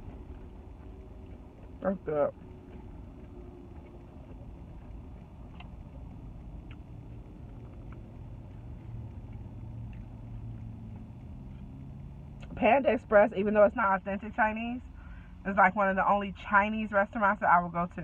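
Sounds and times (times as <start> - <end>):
car engine hum: 0.0 - 18.0
low rumble of traffic: 0.0 - 18.0.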